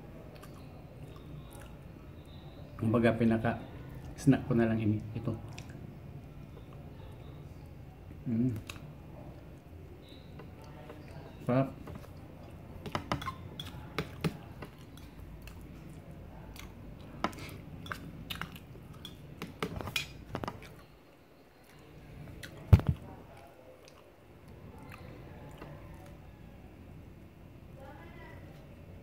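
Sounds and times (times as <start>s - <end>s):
chewing: 0.2s - 2.4s, 8.5s - 26.3s.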